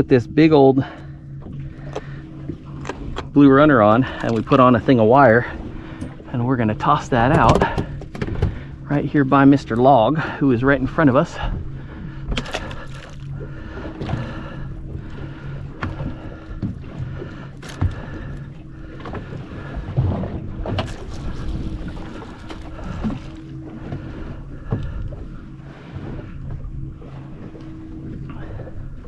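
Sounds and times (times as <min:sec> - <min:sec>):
boat engine hum: 0:00.0 - 0:29.0
water washing against hull: 0:00.0 - 0:29.0.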